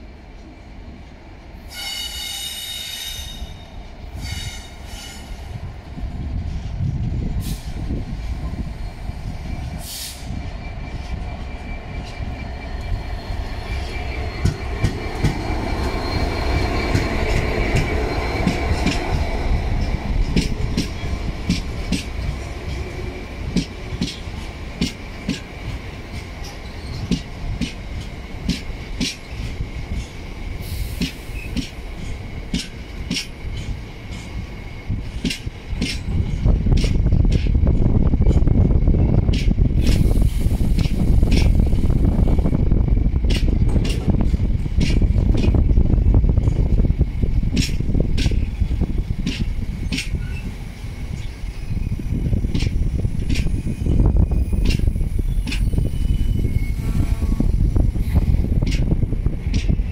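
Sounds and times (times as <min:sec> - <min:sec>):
diesel locomotive engine rumble: 0:00.0 - 0:59.9
train wheels clicking over rail joints: 0:09.6 - 0:59.9
high-pitched squeals: 0:10.3 - 0:18.9, 0:53.0 - 0:58.2.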